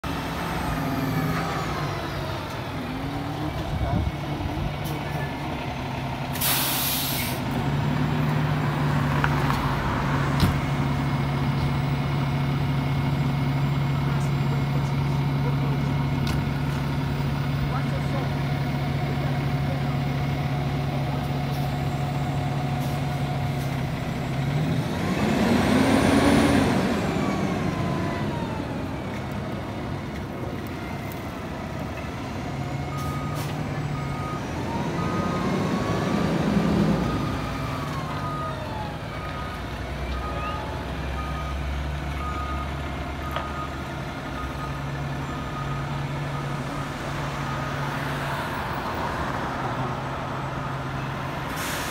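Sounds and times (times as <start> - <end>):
diesel engine idling: 0.0 - 9.1, 9.7 - 51.8
passing traffic: 0.0 - 51.9
reversing alarm beeping: 32.8 - 43.8, 44.4 - 47.8.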